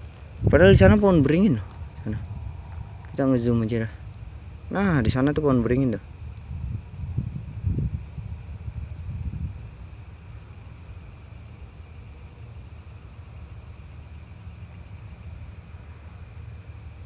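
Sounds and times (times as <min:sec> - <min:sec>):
low rumble: 0:00.0 - 0:05.9
crickets and night insects chirping: 0:00.0 - 0:17.0.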